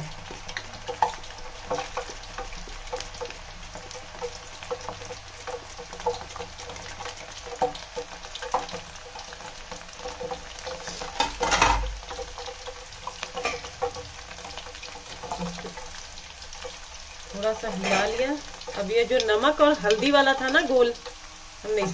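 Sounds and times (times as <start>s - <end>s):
banana slices deep-frying in oil: 0.0s - 21.9s
sizzling as chips are stirred: 0.0s - 21.9s.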